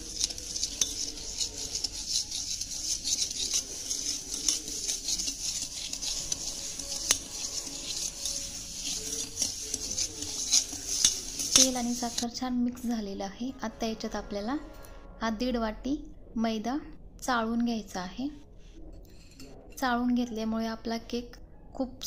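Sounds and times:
whisk scraping a metal pot: 0.0s - 12.3s.

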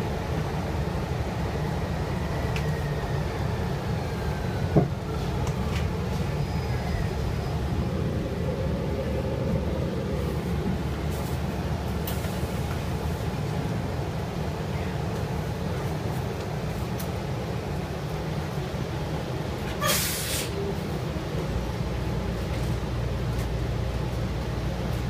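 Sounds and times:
bus engine rumbling: 0.0s - 25.0s
compressed air hiss: 19.8s - 20.5s.

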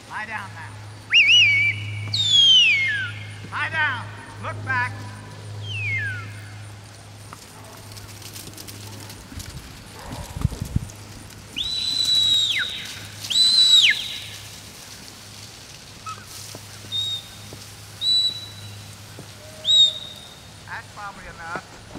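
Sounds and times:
long high whistles with falling glide: 1.1s - 3.3s, 5.6s - 6.6s, 11.5s - 14.3s, 18.0s - 18.8s, 19.4s - 20.4s
short high whistles: 1.1s - 3.3s, 5.6s - 6.5s, 11.6s - 14.3s, 16.9s - 18.8s, 19.4s - 20.5s.

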